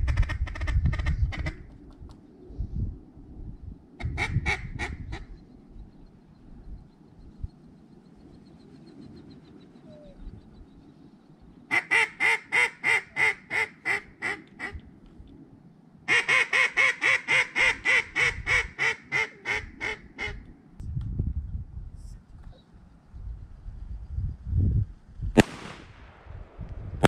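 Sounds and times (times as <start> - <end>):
duck call quacks: 11.7 - 14.8, 16.1 - 20.4.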